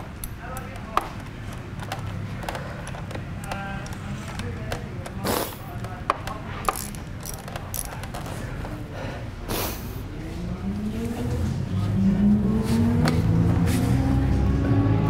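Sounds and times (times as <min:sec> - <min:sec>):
ratchet wrench clicking: 0:06.1 - 0:08.3.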